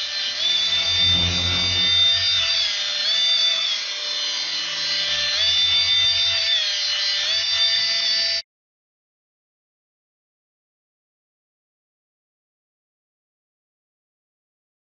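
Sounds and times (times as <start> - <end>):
toy helicopter motors whining: 0.0 - 8.4.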